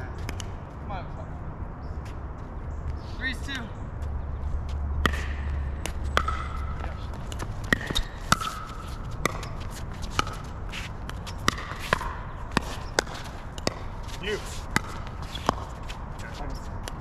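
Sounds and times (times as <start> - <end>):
ball bouncing on court: 4.7 - 17.0
paddles hitting plastic ball: 5.0 - 15.8.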